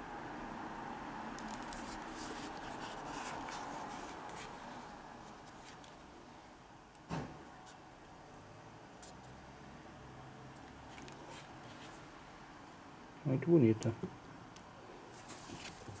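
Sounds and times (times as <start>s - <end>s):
background noise: 0.0s - 16.0s.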